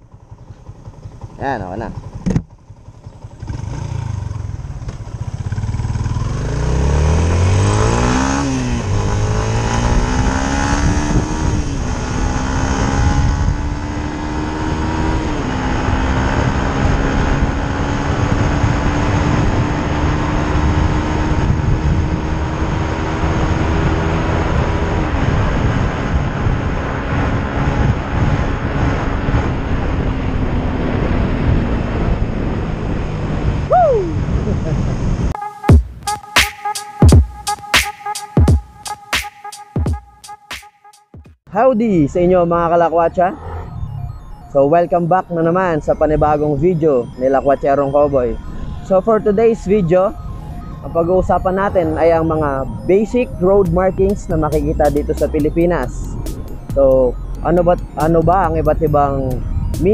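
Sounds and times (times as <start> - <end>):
motorcycle engine shifting gears: 0.0 - 33.7
wind rush on microphone: 9.8 - 14.1, 14.8 - 35.4.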